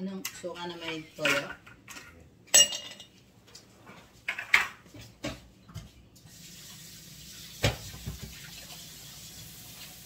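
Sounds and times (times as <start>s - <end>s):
faucet running into sink: 6.3s - 10.0s.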